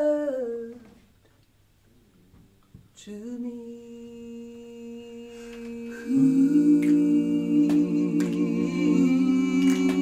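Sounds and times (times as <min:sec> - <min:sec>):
a cappella harmony singing: 0:00.0 - 0:01.0, 0:03.0 - 0:10.0.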